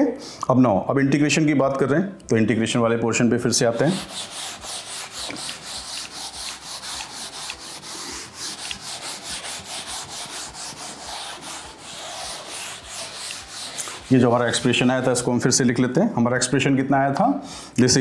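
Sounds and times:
duster rubbing chalkboard: 3.5 - 15.3.

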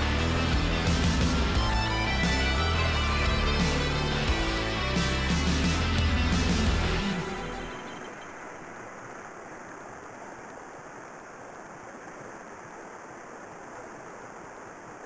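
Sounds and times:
intro music: 0.0 - 8.3
river rushing over rapids: 7.0 - 15.0.

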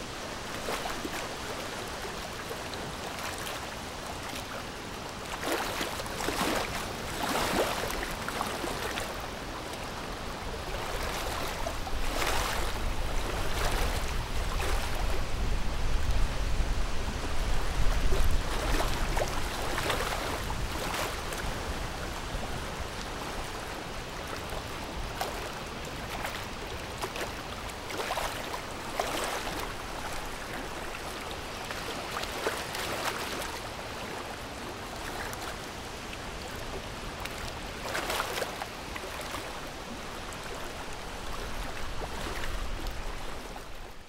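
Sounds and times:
rushing wind-like hiss: 12.6 - 20.8.

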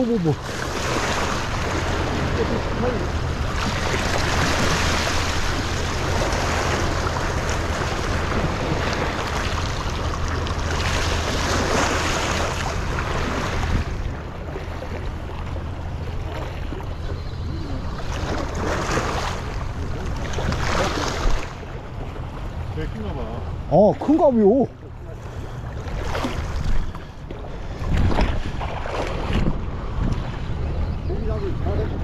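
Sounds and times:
small waves washing against rocks: 0.0 - 14.0
wind on microphone: 0.0 - 14.4, 25.8 - 32.0.

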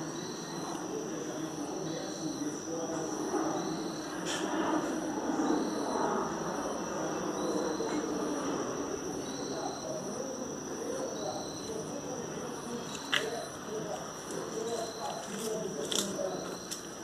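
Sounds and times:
insect chirp: 0.0 - 17.0
insects trilling: 0.0 - 17.0
low background murmur: 0.0 - 17.0.

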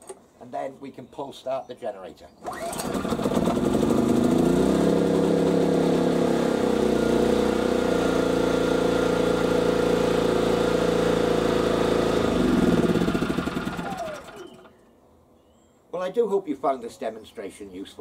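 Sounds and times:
generator engine running: 2.5 - 14.7.

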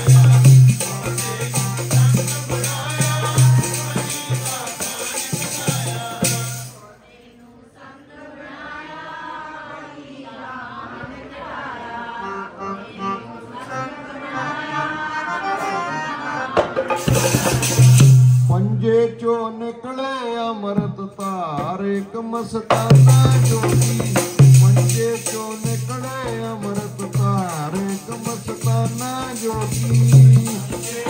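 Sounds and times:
hand drum: 0.0 - 6.6, 16.6 - 18.5, 22.7 - 31.0
harmonium: 0.0 - 6.7, 11.6 - 19.1
jingling percussion: 0.0 - 6.8, 16.8 - 18.6, 21.2 - 31.0
person singing devotional song: 0.0 - 8.1, 11.9 - 31.0.

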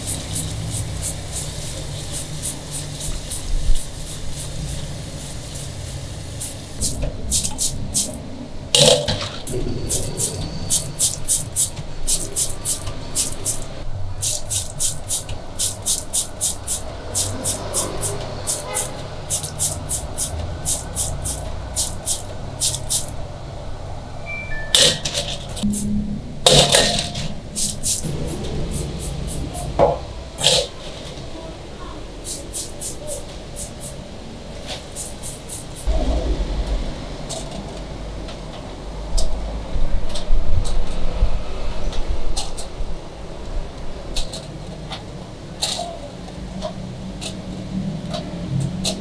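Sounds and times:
sponge scrubbing shells: 10.0 - 23.1.

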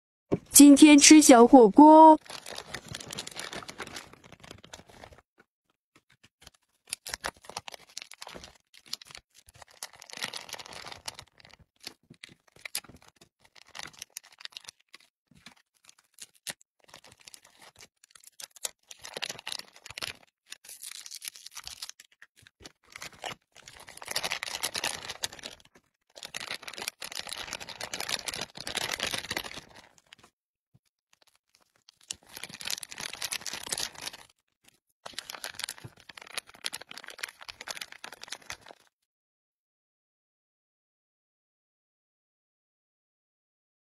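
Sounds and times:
plastic packets crinkling: 2.1 - 5.2, 6.4 - 30.3, 31.1 - 38.9.

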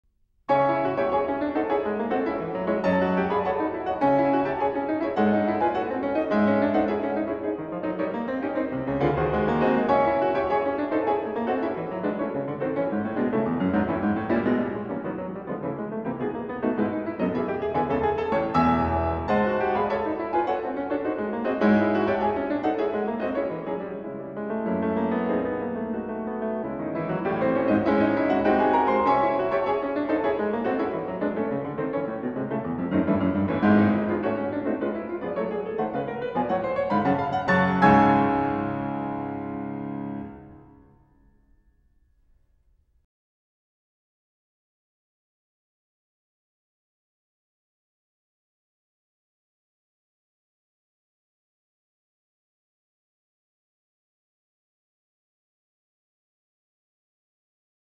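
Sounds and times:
flowing piano piece: 0.5 - 41.5.

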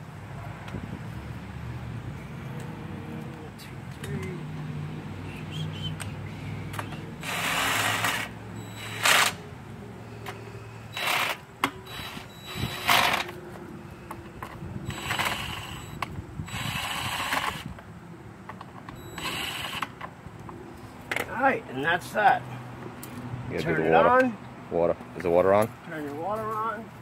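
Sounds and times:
cordless drill spinning: 7.2 - 9.4, 10.9 - 13.3, 14.9 - 17.7.

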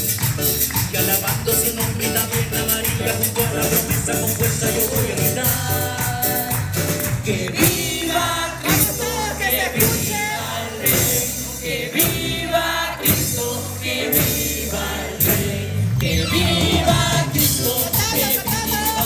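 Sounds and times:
live band playing: 0.0 - 19.0
male lead singer: 0.5 - 19.0
women's chorus singing: 4.9 - 18.2.

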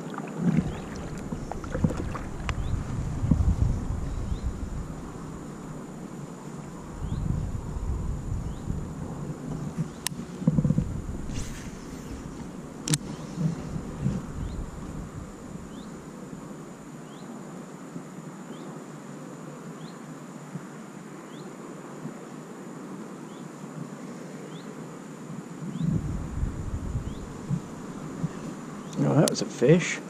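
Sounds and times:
wind noise on microphone: 0.0 - 16.9, 25.6 - 29.0.

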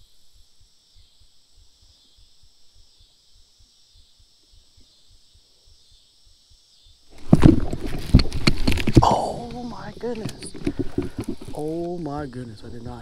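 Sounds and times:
steady high hiss: 0.0 - 13.0
fish splashing in water: 7.1 - 12.0.

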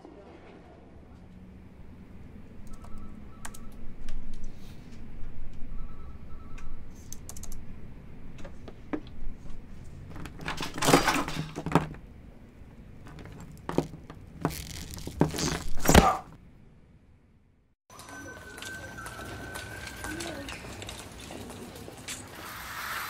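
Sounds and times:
cables rustling and clattering: 8.3 - 16.0, 17.9 - 22.5.

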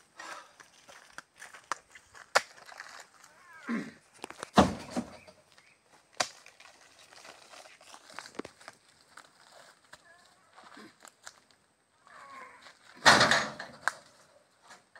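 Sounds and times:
fruit bunches thudding into truck: 4.5 - 5.3, 13.0 - 14.1.

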